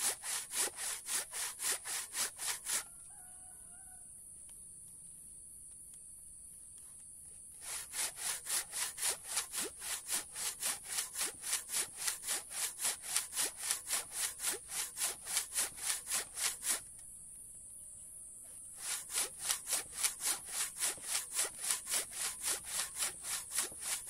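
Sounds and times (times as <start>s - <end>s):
handsaw cutting hard wood: 0.0s - 2.8s, 7.6s - 16.8s, 18.8s - 24.0s.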